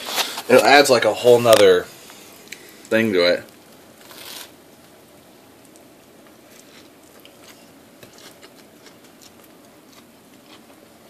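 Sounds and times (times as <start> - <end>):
person chewing crunchy food: 4.0 - 4.6, 5.6 - 10.8.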